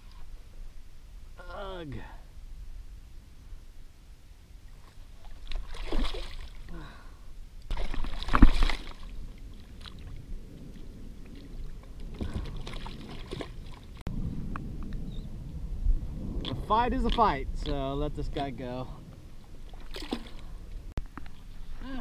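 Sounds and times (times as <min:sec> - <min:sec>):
water splashing and sloshing: 0:04.6 - 0:14.1, 0:19.2 - 0:22.0.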